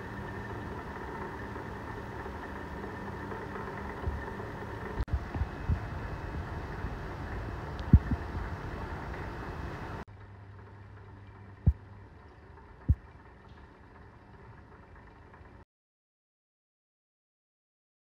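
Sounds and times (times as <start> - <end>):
magnetic stirrer humming: 0.0 - 15.6
dull low thumps: 5.1 - 7.1, 7.8 - 8.5.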